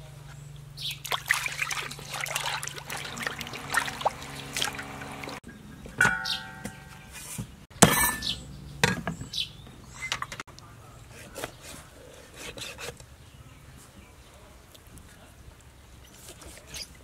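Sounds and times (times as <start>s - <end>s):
knocks and clinks: 6.0s - 7.1s, 7.8s - 9.2s.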